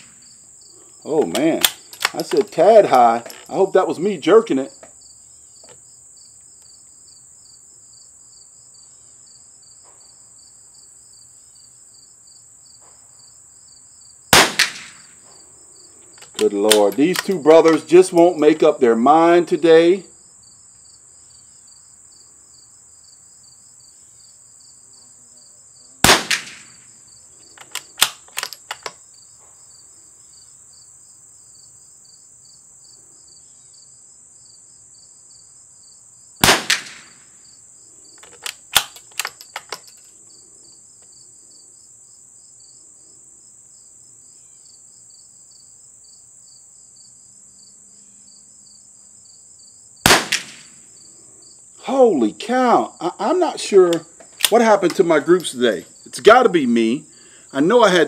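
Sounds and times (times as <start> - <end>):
crickets chirping: 0.0 - 58.0
rifle bolt metallic clicks: 1.2 - 2.6, 16.2 - 17.9, 27.5 - 29.0, 38.2 - 40.1, 53.9 - 55.0
rifle shots: 14.3 - 15.1, 16.2 - 17.8, 26.0 - 26.8, 36.4 - 37.2, 50.1 - 50.8.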